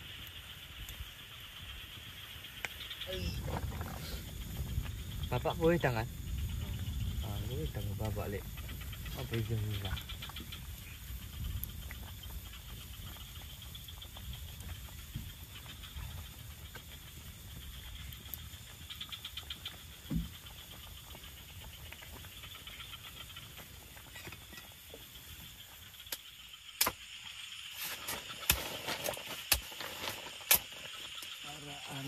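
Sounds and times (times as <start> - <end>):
insect chirr: 0.0 - 32.0
quick run of ticks: 8.3 - 31.4.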